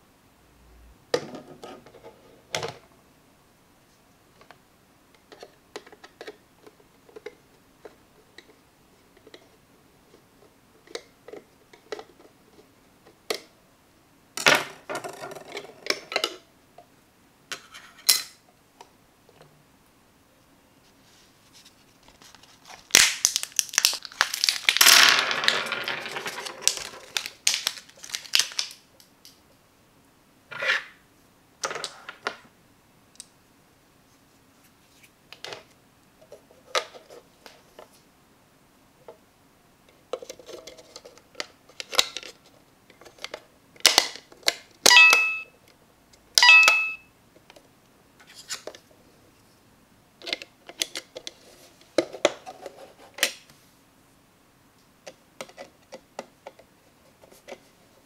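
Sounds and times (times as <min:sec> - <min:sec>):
plastic scraping and rattling: 0:23.8 - 0:28.8
batteries set on wooden table: 0:24.4 - 0:27.2.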